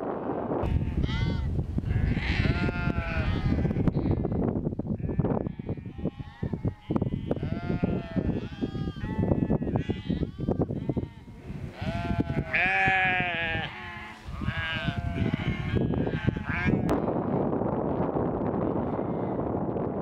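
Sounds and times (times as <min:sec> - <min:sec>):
sheep bleating: 0:00.6 - 0:04.3, 0:05.0 - 0:16.9.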